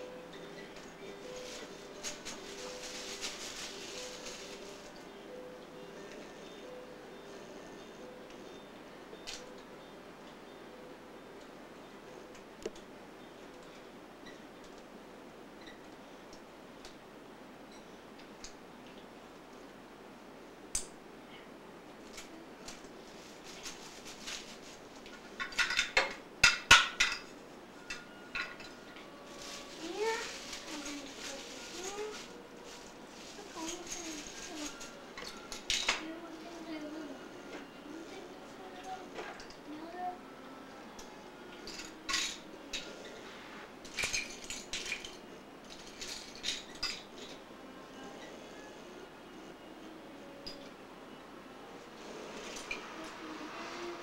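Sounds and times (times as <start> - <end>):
plastic toy pieces clattering: 43.9 - 47.4.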